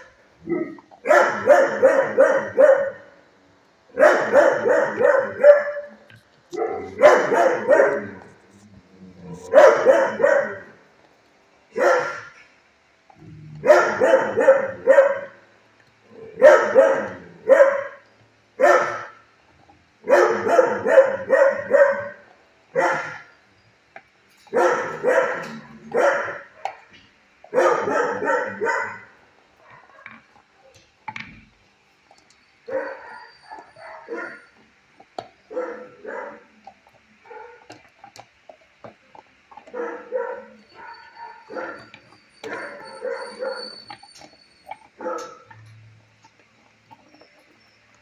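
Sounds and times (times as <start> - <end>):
dog barking: 0.0 - 3.2, 3.9 - 8.4, 9.4 - 10.8, 11.7 - 12.4, 13.6 - 15.4, 16.3 - 18.0, 18.6 - 19.2, 20.0 - 23.3, 24.5 - 26.9, 27.5 - 30.3, 32.7 - 34.6, 35.5 - 44.0, 44.7 - 45.6.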